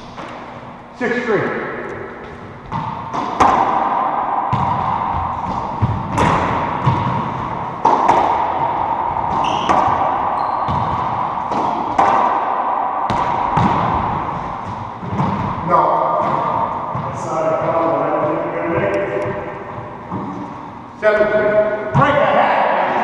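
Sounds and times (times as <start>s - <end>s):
racquetball smacks echoing: 1.7s - 20.6s
sneaker squeak on hardwood: 10.4s - 10.8s.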